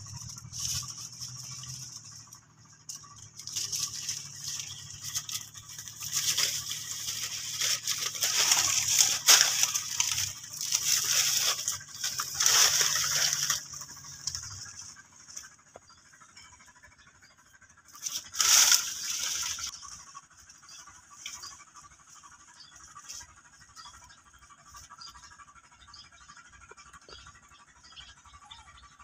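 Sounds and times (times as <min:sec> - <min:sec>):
dry leaves rustling and scratching: 0:00.0 - 0:15.5, 0:17.9 - 0:23.9.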